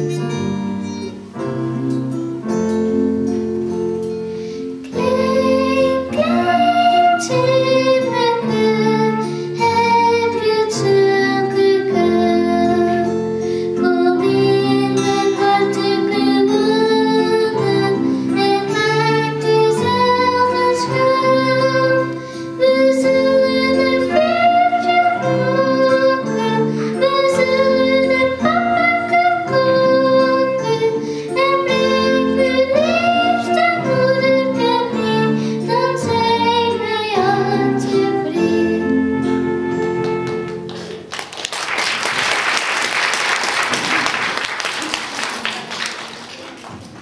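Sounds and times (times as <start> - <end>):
acoustic guitar: 0.0 - 41.5
keyboard: 0.0 - 42.2
girl singing into a microphone: 4.8 - 40.5
audience applauding: 40.0 - 47.0.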